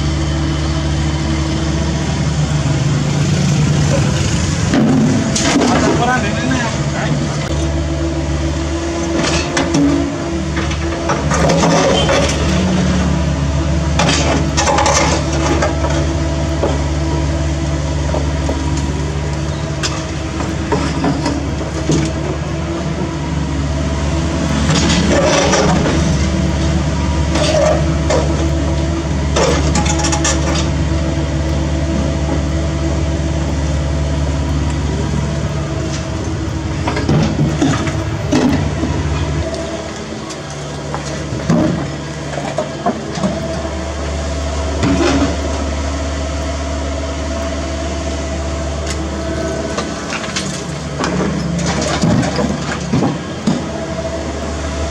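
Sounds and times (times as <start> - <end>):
excavator diesel engine running: 0.0 - 54.9
debris clunking and cracking: 9.2 - 12.8, 13.9 - 16.8, 24.6 - 30.9, 35.8 - 43.6, 49.7 - 53.8.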